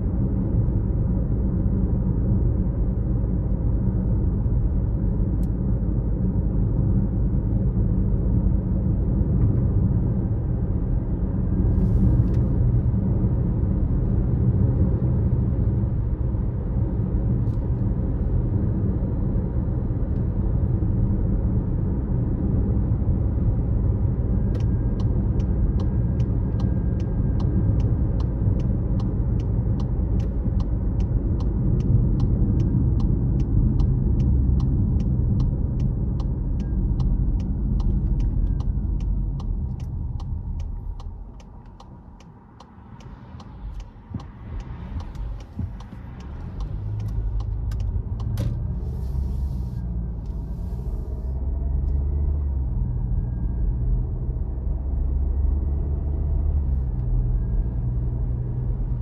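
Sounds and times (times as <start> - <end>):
car road and engine rumble: 0.0 - 59.0
regular ticking: 25.4 - 48.4.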